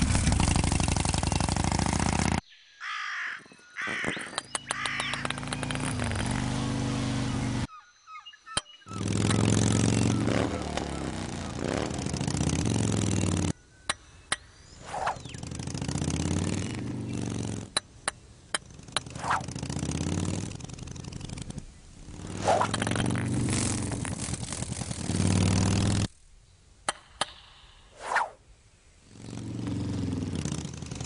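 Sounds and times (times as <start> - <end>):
sharp clicks: 4.1 - 6.0.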